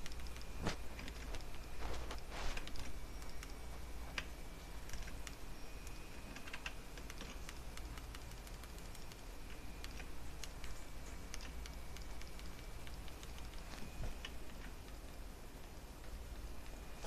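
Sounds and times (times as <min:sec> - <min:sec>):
low steady hum: 0:00.0 - 0:17.0
mouse and keyboard clicks: 0:02.6 - 0:15.0.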